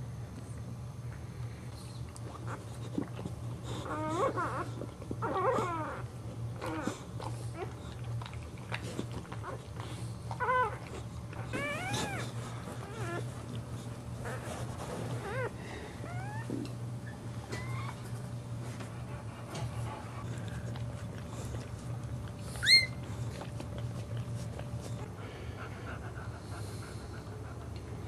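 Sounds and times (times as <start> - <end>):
puppies squealing: 11.4 - 13.2, 15.2 - 18.0, 22.6 - 23.0.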